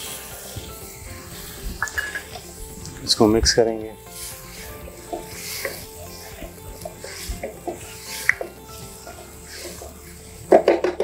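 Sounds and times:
soft background music: 0.0 - 11.0
wooden spatula scraping frying pan: 4.0 - 11.0.

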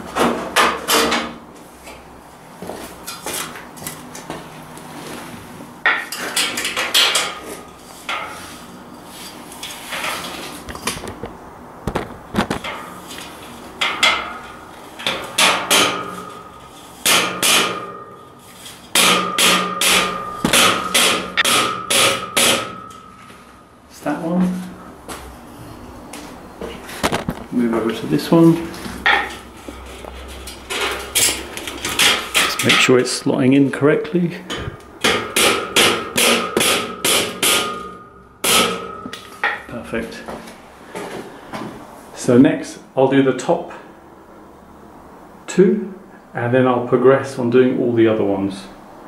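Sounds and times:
steel frame ringing: 13.8 - 23.6, 34.5 - 39.7
rubber mallet knocking steel: 19.0 - 23.0, 35.0 - 39.6.

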